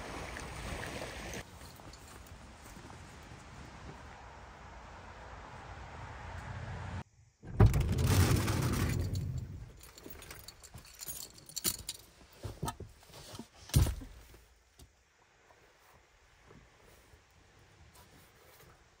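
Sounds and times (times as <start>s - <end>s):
metal clips jingling: 8.9s - 12.8s.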